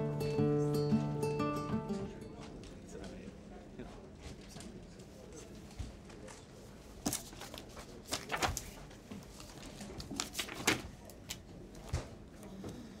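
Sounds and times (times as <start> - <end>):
papers rustling: 6.1 - 12.1.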